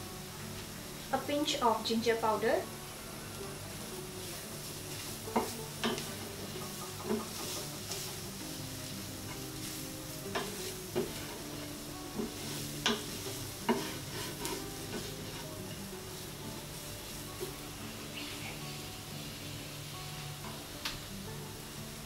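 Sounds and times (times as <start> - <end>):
vegetables sizzling in oil: 0.0 - 22.0
spatula scraping and knocking pan: 5.0 - 15.6.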